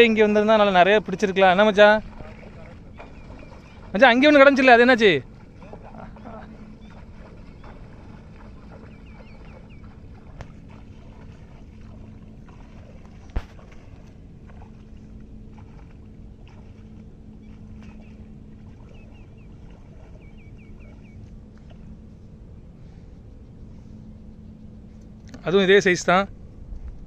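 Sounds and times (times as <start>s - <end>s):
bird chirping high: 8.6s - 10.0s, 18.8s - 21.2s.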